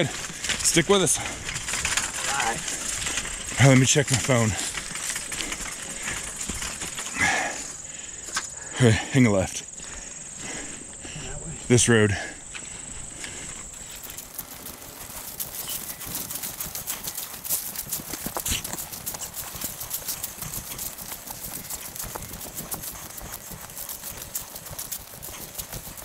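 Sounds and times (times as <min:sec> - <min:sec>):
cart rattling and clanking: 0:00.0 - 0:07.6, 0:13.8 - 0:26.0
footsteps crunching through dry leaves: 0:12.4 - 0:26.0.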